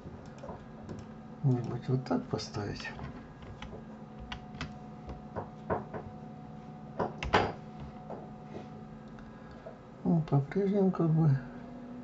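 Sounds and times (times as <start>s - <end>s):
faint steady hum: 0.0s - 12.0s
keyboard and mouse clicking: 3.4s - 4.8s.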